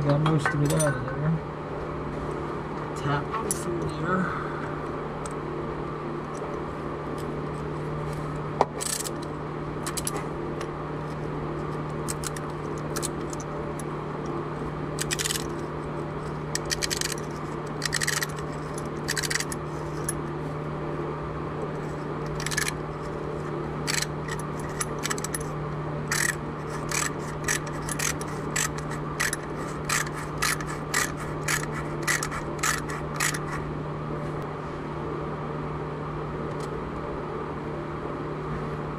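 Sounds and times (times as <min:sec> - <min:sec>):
steady low hum: 0:00.0 - 0:38.9
metal tool scraping and clicking: 0:16.5 - 0:20.2, 0:22.3 - 0:22.8, 0:23.9 - 0:25.5, 0:26.1 - 0:33.6.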